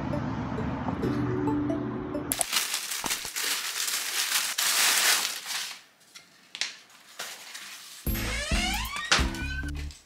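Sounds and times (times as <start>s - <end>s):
plastic bag crinkling: 2.3s - 8.1s.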